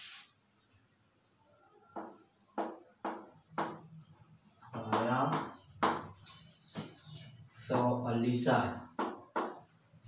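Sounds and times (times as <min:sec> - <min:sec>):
chalk tapping and scraping on blackboard: 0:02.0 - 0:08.0, 0:08.9 - 0:09.7.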